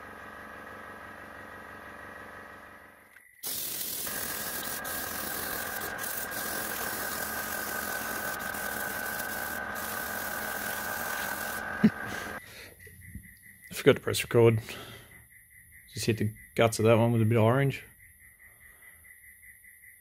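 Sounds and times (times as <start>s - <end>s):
airbrush hissing: 3.4s - 12.4s
steady high tone: 3.4s - 12.4s.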